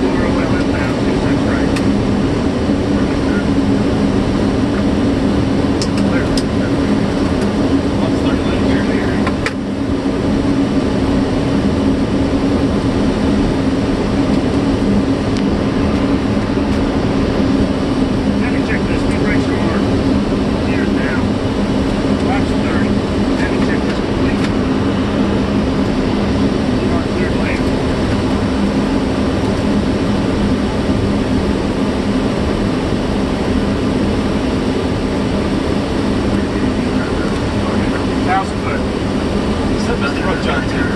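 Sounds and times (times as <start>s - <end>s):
aircraft engine and airflow noise: 0.0s - 40.9s
constant low hum: 0.0s - 40.9s.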